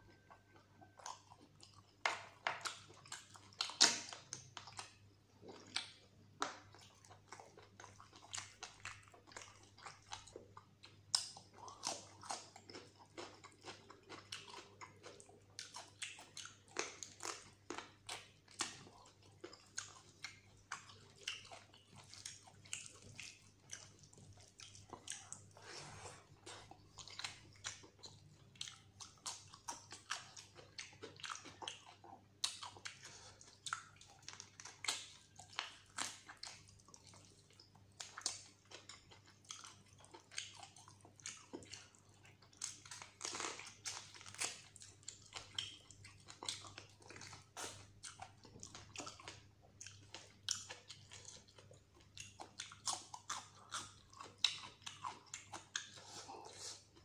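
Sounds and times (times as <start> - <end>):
person chewing with open mouth: 0.0 - 57.0.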